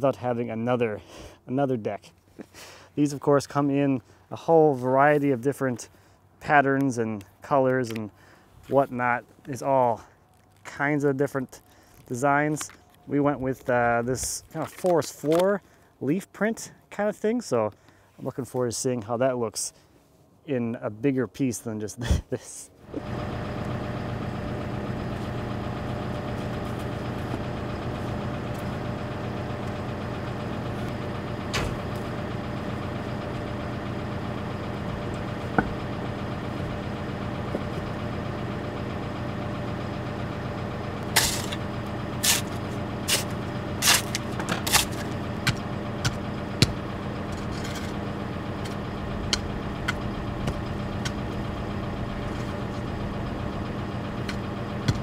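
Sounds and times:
engine idling: 22.8 - 55.0.

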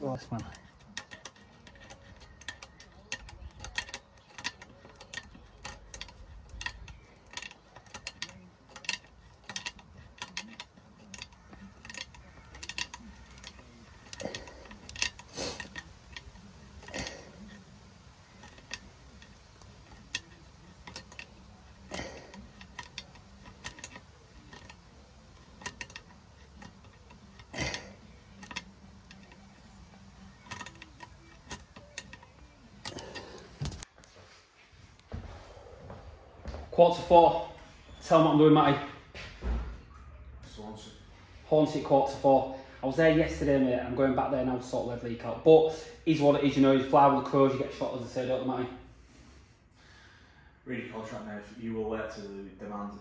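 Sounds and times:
pliers clicking on metal bolt: 0.3 - 17.6, 18.3 - 33.9.

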